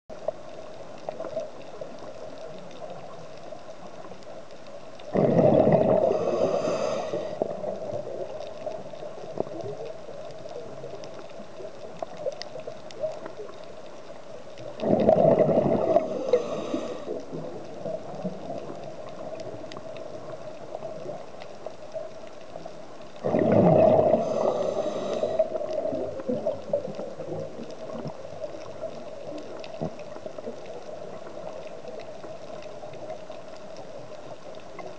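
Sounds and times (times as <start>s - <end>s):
underwater exhaled bubbles rushing: 5.0s - 13.6s, 14.6s - 22.1s, 23.2s - 34.1s.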